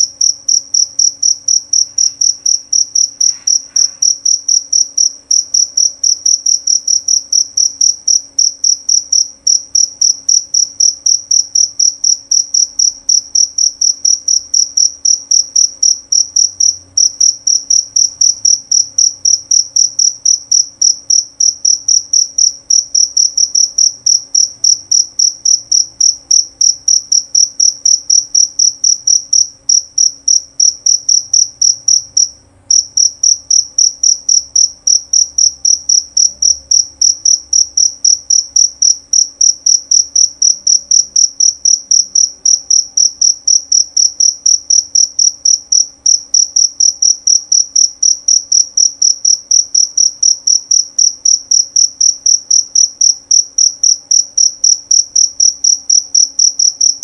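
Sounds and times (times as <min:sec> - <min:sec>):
cricket chirping: 0:00.0 - 0:57.0.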